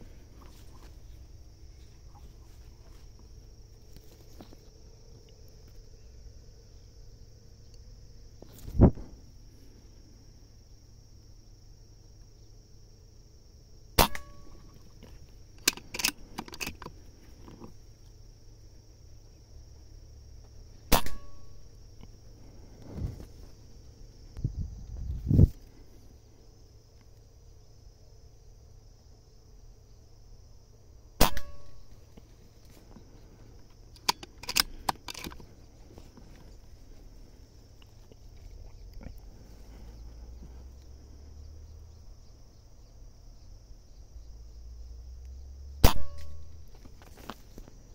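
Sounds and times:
air rifle shot: 0:14.0 - 0:14.4, 0:20.9 - 0:21.4, 0:31.2 - 0:31.7, 0:45.8 - 0:46.3
small clicks and knocks: 0:15.0 - 0:18.2, 0:33.6 - 0:35.5
metallic ring: 0:21.0 - 0:21.6, 0:31.2 - 0:32.0, 0:45.8 - 0:46.6
sharp clicks and knocks: 0:33.9 - 0:35.5.

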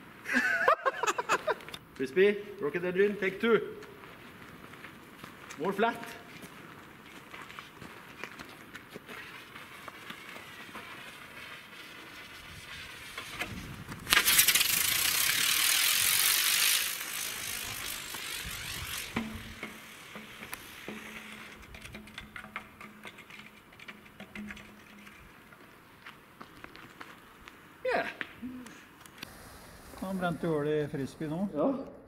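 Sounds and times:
rocket motor hissing: 0:10.5 - 0:21.7, 0:29.2 - 0:30.4.

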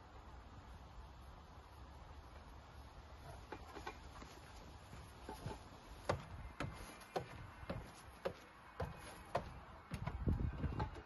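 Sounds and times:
footsteps walking: 0:03.5 - 0:10.1
footsteps on wooden stairs: 0:04.2 - 0:11.0.

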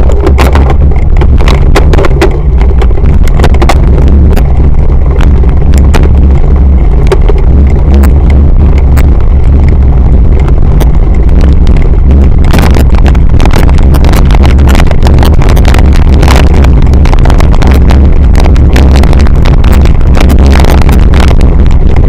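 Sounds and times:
bike rattling over rough dirt: 0:00.0 - 0:09.2
wind buffeting microphone: 0:00.0 - 0:22.0.

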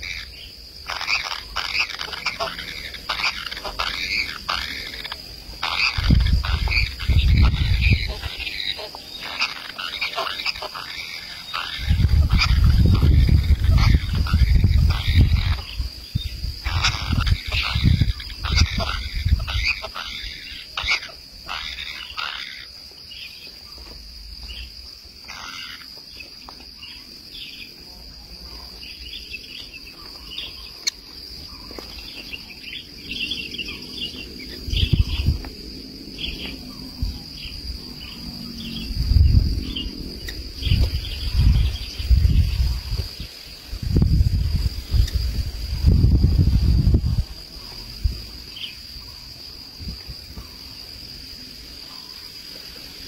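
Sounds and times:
high-pitched insect drone: 0:00.0 - 0:53.0
loud low rumbles: 0:33.7 - 0:43.0.

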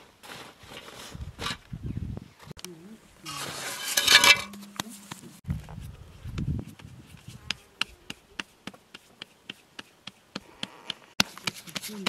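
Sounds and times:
hands patting dough: 0:06.3 - 0:12.0.

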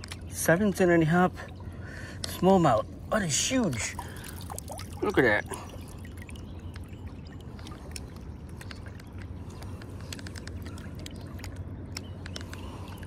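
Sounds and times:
water dripping and trickling: 0:03.2 - 0:13.0
small splashes: 0:03.6 - 0:13.0.

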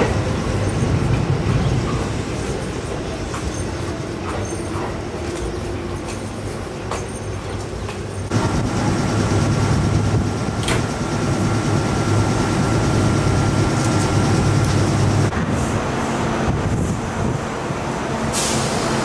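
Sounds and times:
train rumble: 0:00.0 - 0:19.0.

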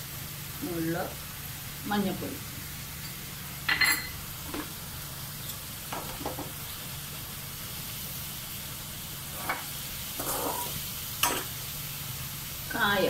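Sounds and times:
vegetables sizzling in a pan: 0:00.0 - 0:13.0
steel ladle scraping a pan: 0:09.3 - 0:11.6.

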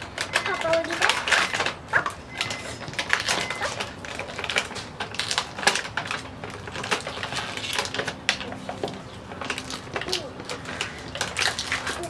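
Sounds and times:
plastic bag crinkling: 0:00.0 - 0:12.0.

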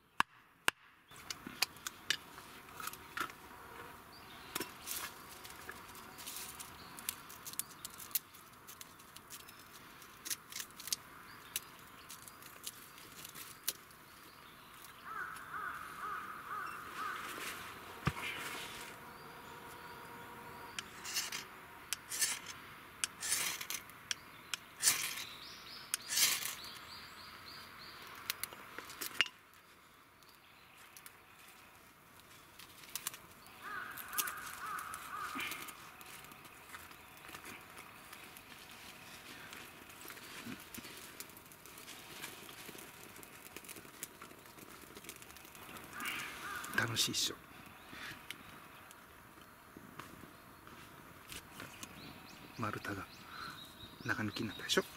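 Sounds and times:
bird calling: 0:14.7 - 0:21.3, 0:33.4 - 0:40.7, 0:45.6 - 0:48.8, 0:51.6 - 0:54.9
knife scraping bark: 0:20.7 - 0:23.9, 0:24.5 - 0:26.7.

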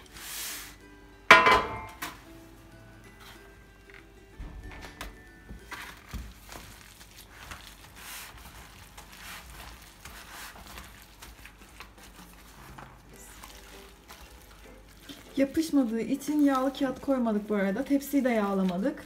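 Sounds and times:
rustling and soft squishing: 0:02.3 - 0:19.0.

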